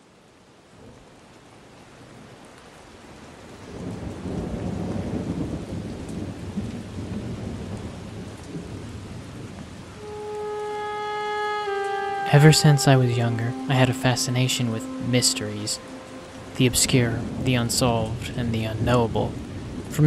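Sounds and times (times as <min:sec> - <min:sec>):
rain falling: 0:00.0 - 0:20.0
thunder rumbling: 0:03.8 - 0:10.7, 0:13.1 - 0:20.0.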